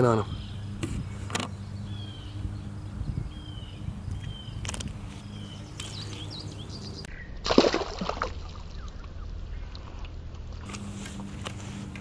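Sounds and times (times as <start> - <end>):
birds chirping faintly: 0.0 - 7.4, 8.5 - 10.1
splash in pond water: 7.4 - 9.2.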